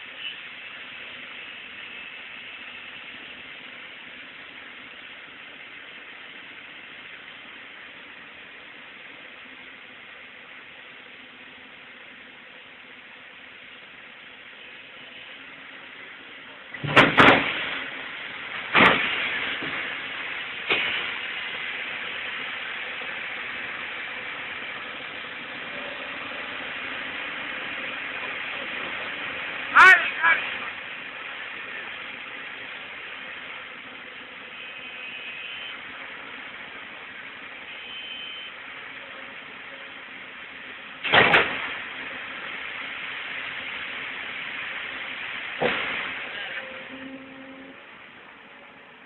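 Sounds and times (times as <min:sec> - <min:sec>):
excavator diesel engine running: 0:00.0 - 0:49.0
steady hiss: 0:00.0 - 0:49.0
sudden loud burst of noise: 0:16.7 - 0:21.8, 0:41.0 - 0:47.8.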